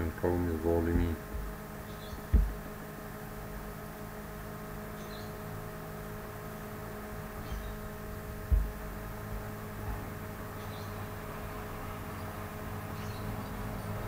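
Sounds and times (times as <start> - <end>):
low electrical hum: 0.0 - 14.0
short low thump: 0.9 - 2.8, 8.3 - 8.9.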